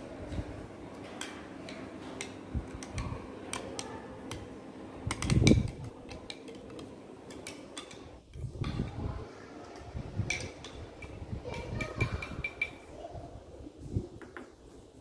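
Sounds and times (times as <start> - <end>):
spoon clinking against glass: 12.0 - 12.8.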